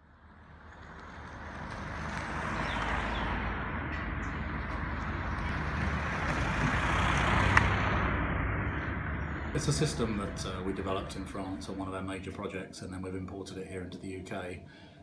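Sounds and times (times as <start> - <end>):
distant traffic hum: 0.0 - 15.0.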